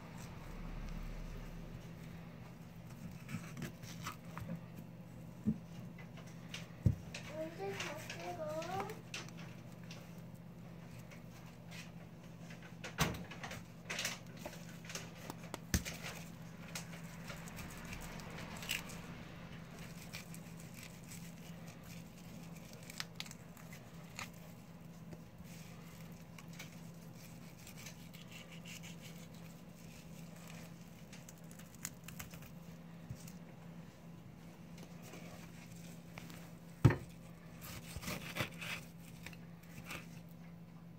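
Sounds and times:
steady low hum: 0.0s - 40.9s
knife cutting and scraping fish: 14.6s - 32.6s, 37.2s - 40.3s.

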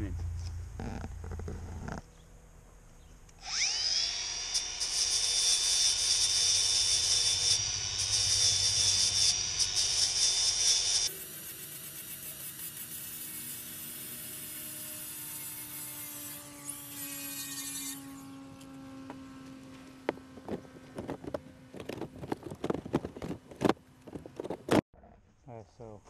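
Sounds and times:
angle grinder whining: 3.3s - 22.4s
harsh high grinding noise: 3.4s - 24.8s
sharp knocks and handling clatter: 20.0s - 24.8s.

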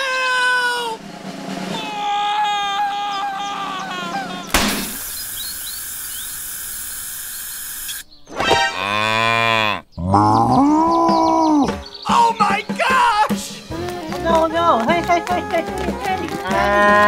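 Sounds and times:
sudden pop: 4.5s - 5.0s
steady hiss: 4.5s - 8.0s
cow mooing: 8.6s - 10.6s.

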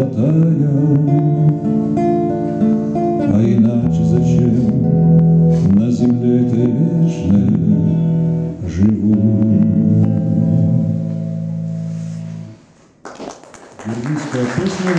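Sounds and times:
acoustic guitar strumming: 0.0s - 12.8s
people clapping: 13.0s - 14.9s.

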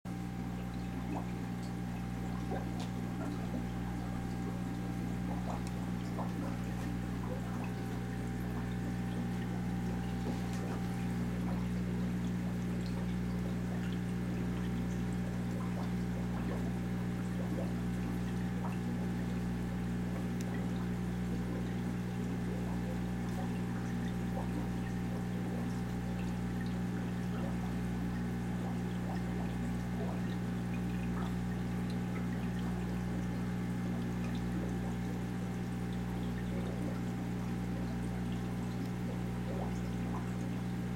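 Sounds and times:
aquarium pump humming: 0.1s - 40.9s
water trickling into tank: 0.1s - 40.9s
faint ticks: 0.6s - 27.3s.

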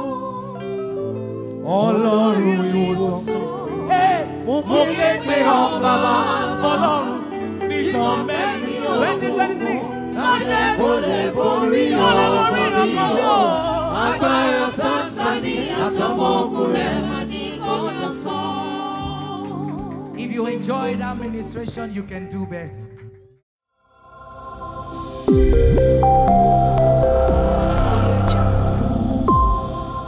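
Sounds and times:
gospel singing voices: 0.0s - 21.6s, 24.2s - 30.0s
sustained instrumental chords: 24.2s - 30.0s.

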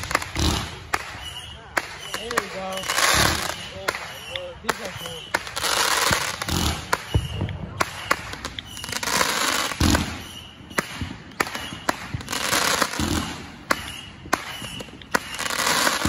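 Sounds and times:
fireworks launch thumps: 0.0s - 8.8s
fireworks bangs and crackles: 0.0s - 16.0s.

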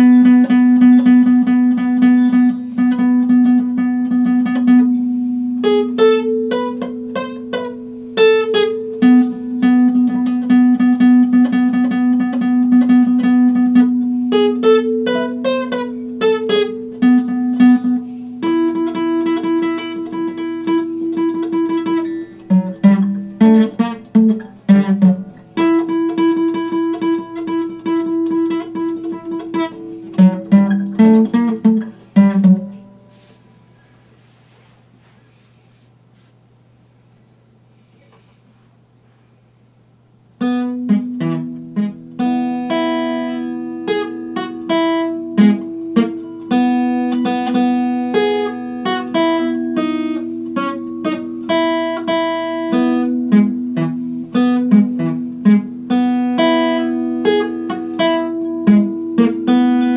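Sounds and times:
acoustic guitar playing: 0.0s - 59.9s.

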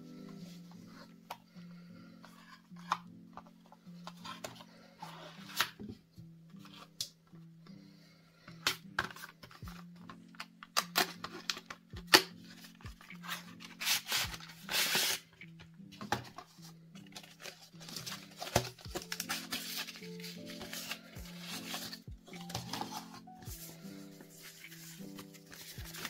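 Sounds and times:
soft background music: 0.0s - 26.0s
cardboard scraping rustle: 16.0s - 26.0s
packaging taps and clicks: 17.1s - 23.7s.

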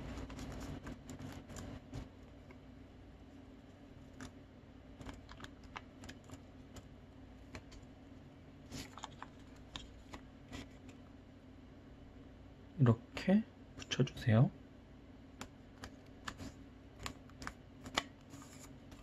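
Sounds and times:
paper crackling: 0.0s - 2.6s.

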